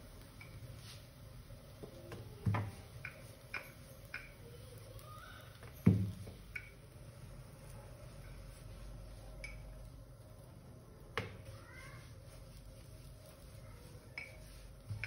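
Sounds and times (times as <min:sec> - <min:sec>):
rolling pin rolling dough: 0:07.4 - 0:15.0.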